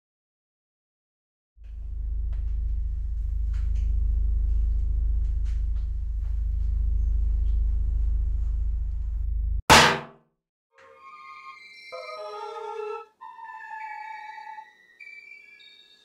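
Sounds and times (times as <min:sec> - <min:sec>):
low rumbling drone: 0:01.6 - 0:09.6
loud crashing hit: 0:09.7 - 0:10.1.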